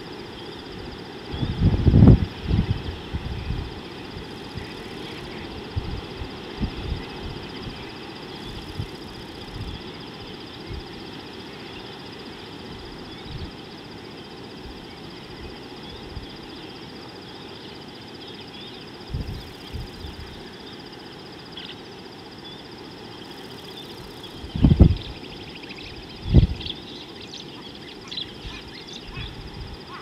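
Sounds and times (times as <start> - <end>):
high pulsing whine: 0.0 - 30.0
steady hiss: 0.0 - 30.0
faint bird chirps: 0.3 - 1.8, 6.6 - 30.0
wind buffeting microphone: 0.7 - 11.0, 12.7 - 13.6, 19.1 - 20.4, 24.0 - 26.7, 28.2 - 30.0.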